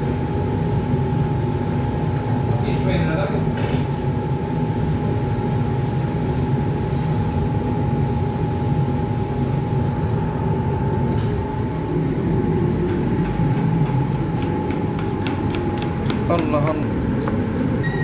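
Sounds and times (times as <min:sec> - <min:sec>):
low mechanical drone: 0:00.0 - 0:18.0
high-pitched whine: 0:17.7 - 0:18.0.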